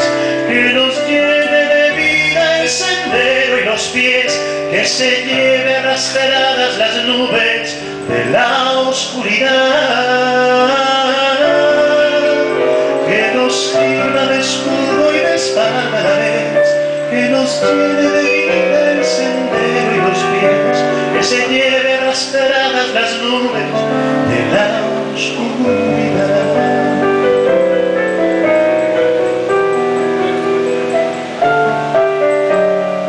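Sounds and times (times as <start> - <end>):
man singing slow ballad: 0.0 - 28.6
keyboard held chords: 0.0 - 33.0.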